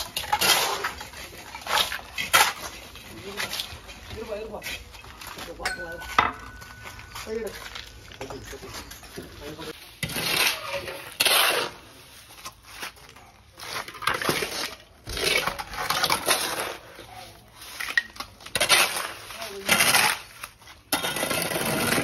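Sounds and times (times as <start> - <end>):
wet cement scraping into metal pans: 0.0 - 22.0.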